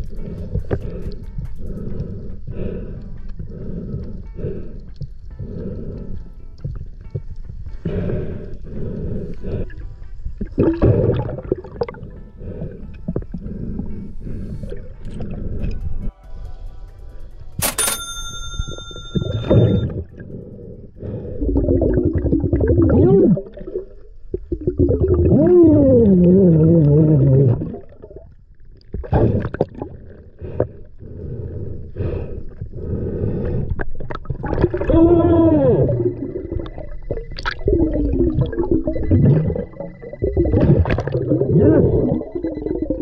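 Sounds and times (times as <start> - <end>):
underwater gurgling: 0.0 - 15.8, 21.1 - 31.0, 33.4 - 43.0
muffled underwater vocal tones: 0.0 - 16.1, 19.3 - 28.4, 33.6 - 43.0
bright ringing ding: 17.6 - 19.9.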